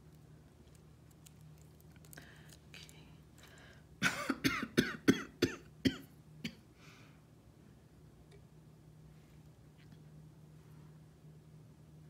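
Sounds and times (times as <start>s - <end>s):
person coughing: 4.0s - 6.6s.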